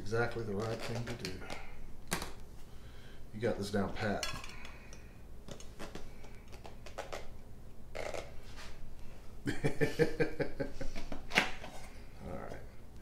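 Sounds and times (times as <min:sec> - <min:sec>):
man laughing heartily: 0:09.4 - 0:11.3.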